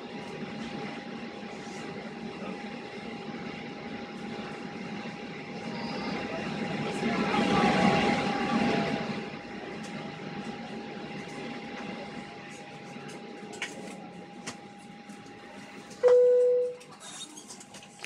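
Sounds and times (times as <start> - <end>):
jet engine hum in cabin: 0.0 - 18.0.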